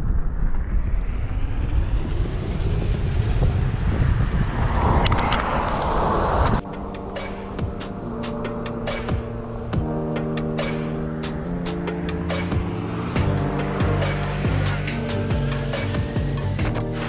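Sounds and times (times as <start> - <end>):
wind rumbling on microphone: 0.0 - 16.8
car passing: 0.6 - 17.0
music: 6.6 - 17.0.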